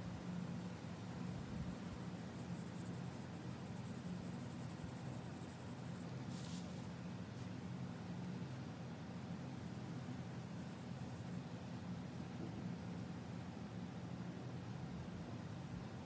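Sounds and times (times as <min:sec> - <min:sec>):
pencil scratching on paper: 0:00.0 - 0:06.8
steady low hum: 0:00.0 - 0:16.0.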